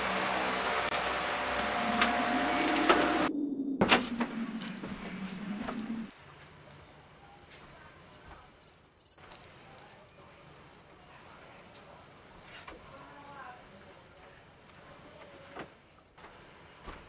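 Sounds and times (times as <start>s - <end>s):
crickets chirping: 6.6s - 13.2s, 13.8s - 15.2s.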